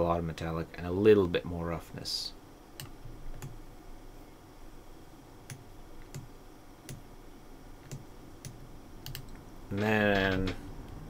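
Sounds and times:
low room hiss: 0.0 - 11.0
mouse and keyboard clicks: 7.8 - 9.4.

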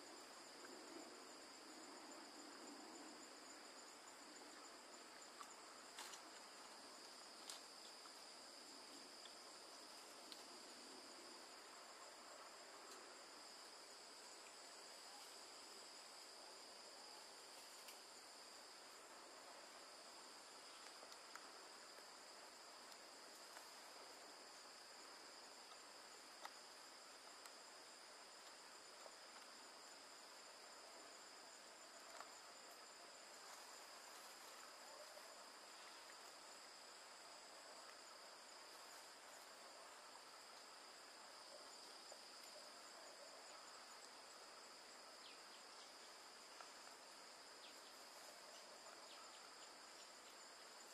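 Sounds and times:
insects trilling: 0.0 - 50.9
faint clicks: 10.3 - 10.5.

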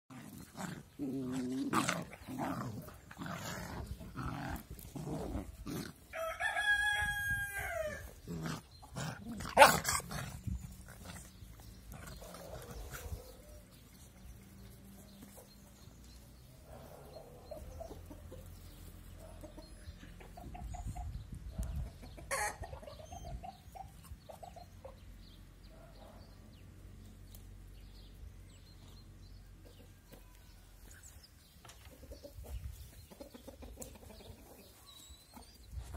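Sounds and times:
puppies growling: 0.1 - 6.1, 8.0 - 13.5
rooster crowing: 6.1 - 8.1
chickens clucking: 8.1 - 25.2, 31.1 - 35.9.

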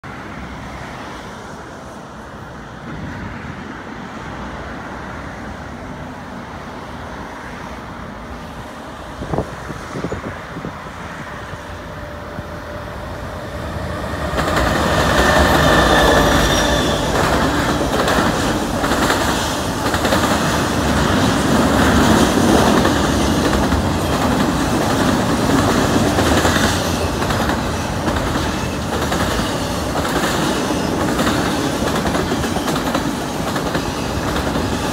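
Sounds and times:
diesel locomotives passing: 0.0 - 34.9
train wheels clacking on rails: 13.2 - 34.9.

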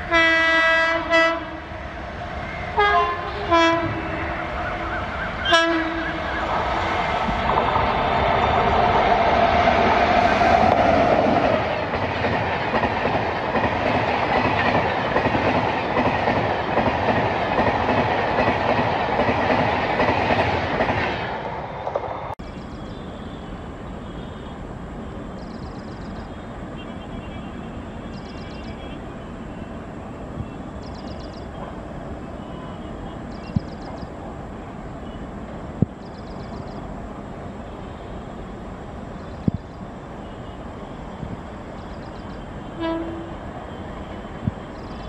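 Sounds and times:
steady background noise: 1.3 - 45.0
train wheels clattering over rails: 7.2 - 22.9.

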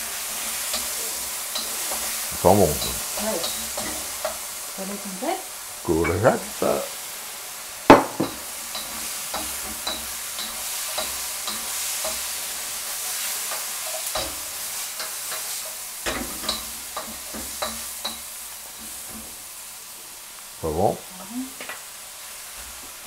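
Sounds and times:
food sizzling in a wok: 0.0 - 23.0
wooden spoon scraping a wok: 8.4 - 19.6.

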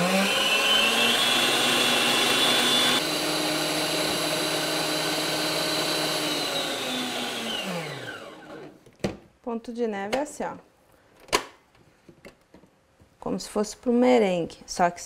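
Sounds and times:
stand mixer motor whine: 0.0 - 8.8.

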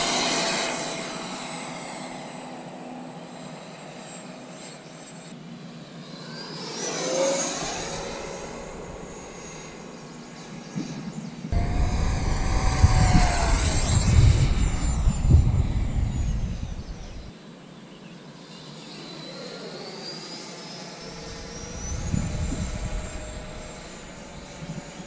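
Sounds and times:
model jet fan whine: 0.0 - 25.0
low rumble: 11.5 - 17.3, 21.2 - 24.9.

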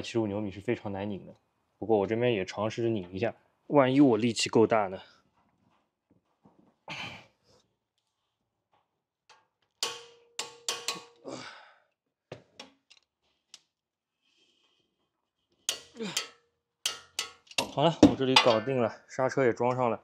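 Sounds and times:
wrench knocks and clunks: 9.3 - 11.2, 15.7 - 18.8.

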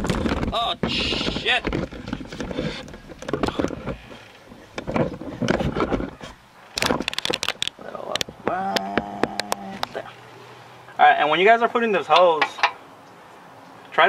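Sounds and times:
clicks knocks and scrapes of handling: 0.0 - 8.5.

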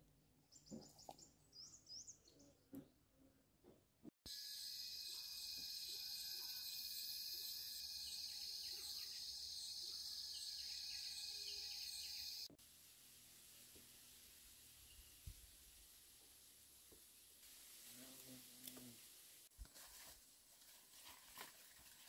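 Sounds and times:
pulsing insect chorus: 4.3 - 12.5.

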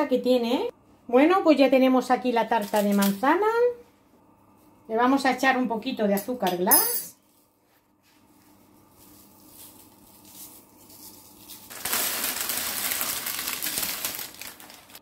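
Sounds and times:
icing sugar rustling and ticking: 8.4 - 15.0.

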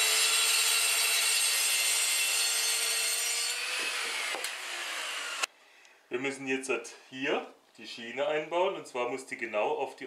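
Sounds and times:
circular saw cutting board: 0.0 - 5.5.

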